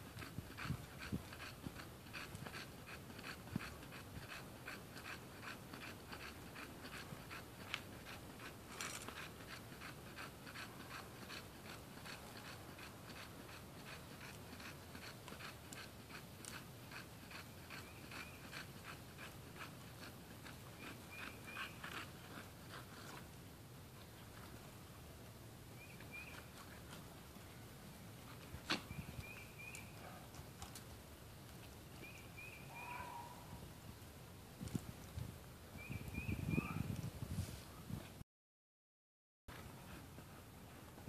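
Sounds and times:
dog panting hard: 0.1s - 23.3s.

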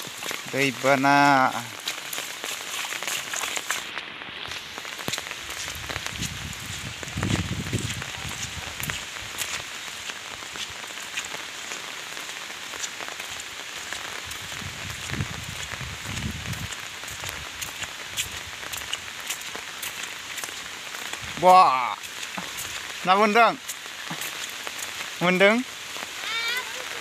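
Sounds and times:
heavy rain on water and leaves: 0.0s - 27.0s.

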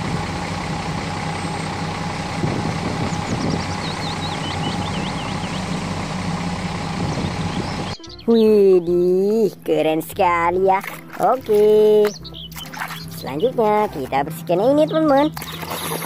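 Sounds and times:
diesel engine running: 0.0s - 16.0s
high chirps: 7.1s - 9.0s, 12.0s - 13.8s.

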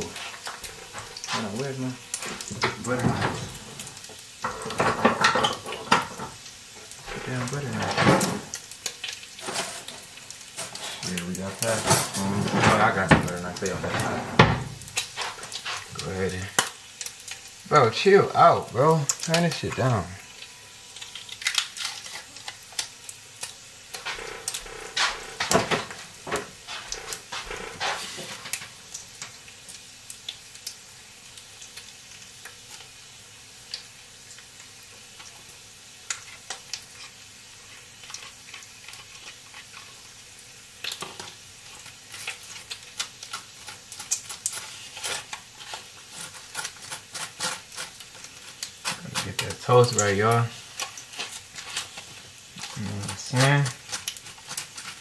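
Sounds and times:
bacon sizzling: 0.0s - 55.0s
butter knife scraping toast: 42.1s - 55.0s.

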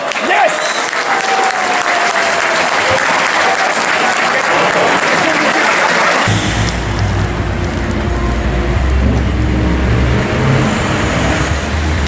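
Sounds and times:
cars driving past: 6.1s - 12.0s.

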